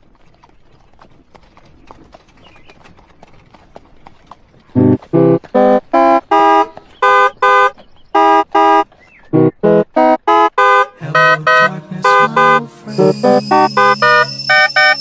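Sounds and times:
distorted pitch-shifted tuned notes: 4.8 - 6.6, 9.4 - 15.0.

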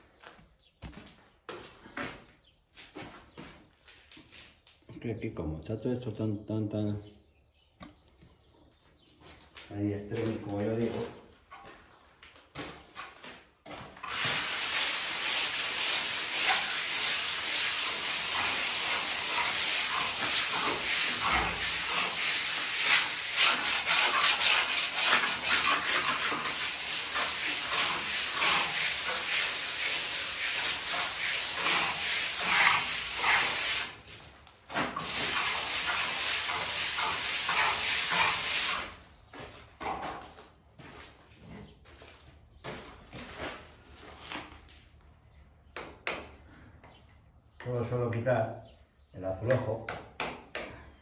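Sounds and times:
float scraping over mortar: 14.0 - 34.0, 34.7 - 38.9.

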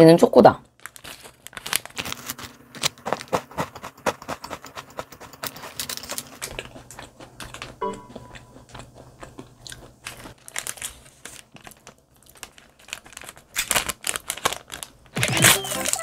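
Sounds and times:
plastic wrapper crinkling: 0.7 - 3.4, 10.1 - 16.0
crunching and chewing snack: 0.7 - 16.0.

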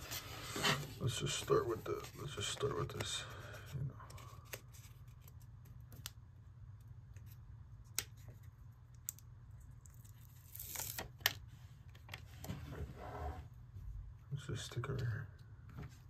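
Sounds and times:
paper crinkle: 9.9 - 11.4.

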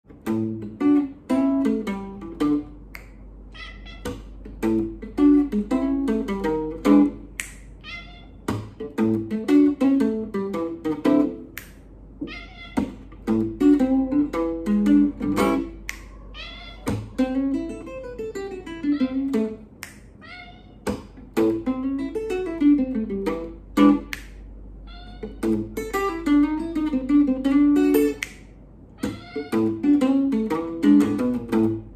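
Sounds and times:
blues guitar picking: 0.1 - 31.9
cat meowing: 3.5 - 4.4, 7.8 - 8.8, 12.2 - 13.2, 16.0 - 17.6, 18.5 - 19.6, 20.2 - 21.1, 24.8 - 25.9, 29.0 - 30.0.

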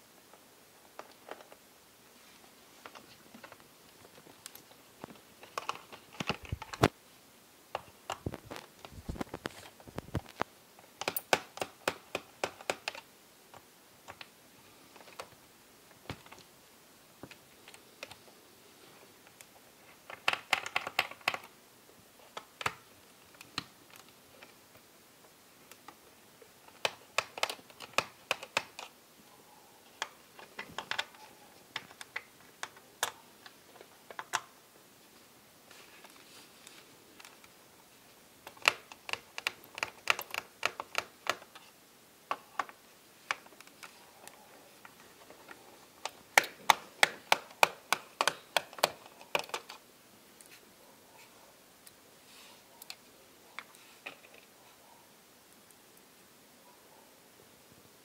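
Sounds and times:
screwdriver clicks and taps: 46.0 - 49.8.

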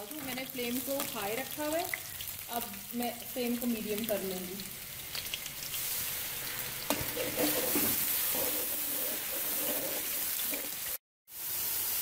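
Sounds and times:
chicken deep-frying in oil: 0.0 - 12.0.

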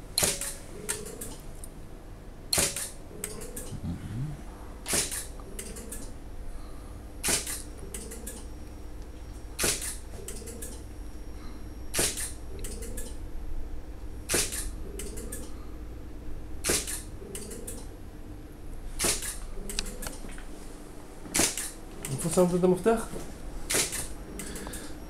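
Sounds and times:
camera shutter firing: 0.2 - 0.6, 2.5 - 3.0, 4.8 - 5.3, 7.2 - 7.6, 9.6 - 10.0, 11.9 - 12.4, 14.3 - 14.7, 16.6 - 17.1, 19.0 - 19.4, 21.3 - 21.8, 23.7 - 24.1.

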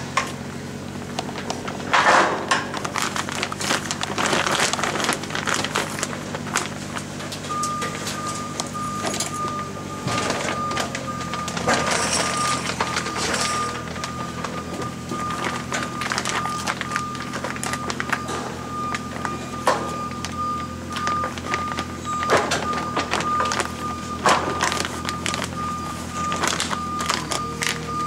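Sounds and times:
clattering and rustling of work: 1.2 - 28.0
high steady beeping alarm: 7.5 - 28.0.

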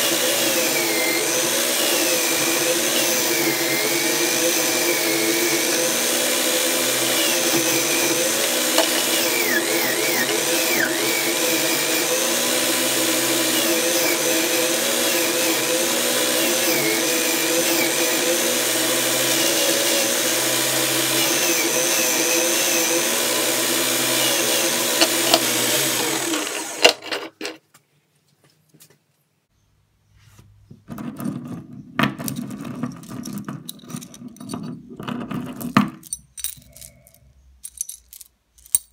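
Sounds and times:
electric drill with wire brush: 0.0 - 27.5
chain scrubbed on wire brush: 6.8 - 11.0
steel chain links clinking: 32.2 - 38.9.

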